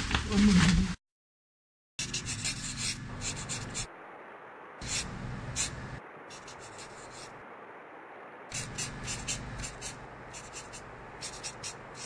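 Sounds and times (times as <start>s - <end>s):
pencil scratching on paper: 2.0s - 3.9s, 4.8s - 7.3s, 8.5s - 12.0s.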